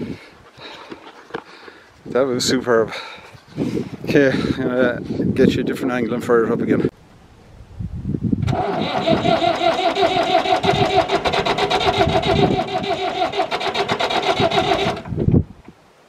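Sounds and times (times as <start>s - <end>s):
diesel engine cranking: 8.4s - 15.2s.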